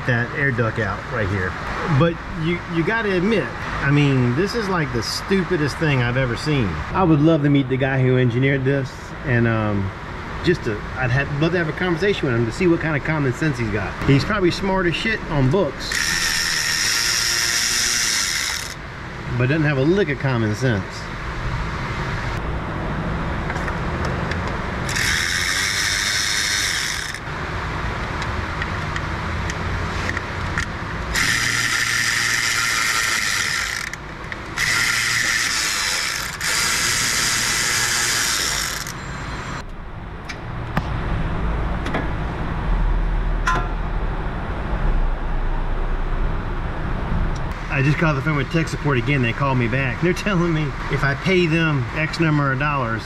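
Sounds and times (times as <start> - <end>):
low steady rumble: 0.0 - 38.1, 38.7 - 53.0
cordless electric ratchet: 15.9 - 18.8, 24.8 - 27.3, 30.5 - 39.0.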